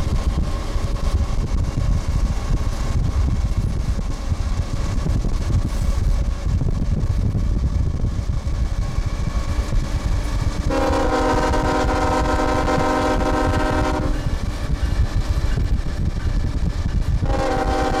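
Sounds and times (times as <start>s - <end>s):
moving train rumble: 0.0s - 18.0s
locomotive air horn blast: 10.7s - 14.4s, 17.2s - 18.0s.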